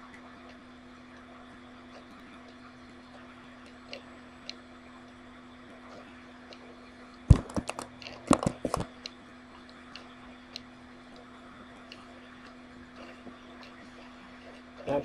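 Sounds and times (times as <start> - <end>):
steady low hum: 0.0 - 15.0
keyboard and mouse clicks: 7.3 - 9.2.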